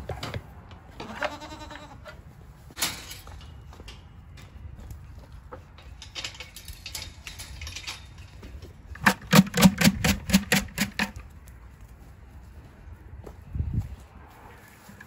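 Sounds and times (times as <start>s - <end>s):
goat kid bleating: 1.0s - 2.2s
footsteps through straw: 11.4s - 15.0s.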